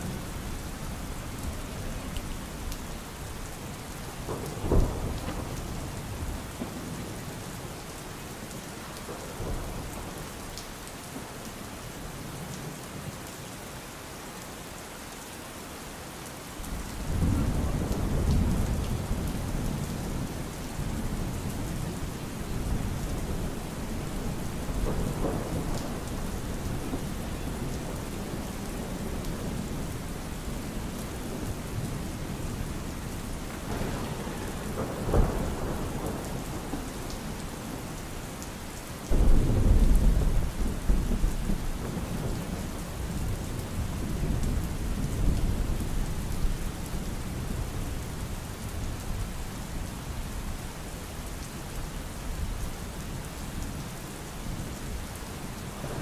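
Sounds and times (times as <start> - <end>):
rain hiss: 0.0 - 56.0
thunder: 4.3 - 7.0, 17.0 - 21.0, 22.6 - 30.0, 33.5 - 37.4, 39.1 - 42.6.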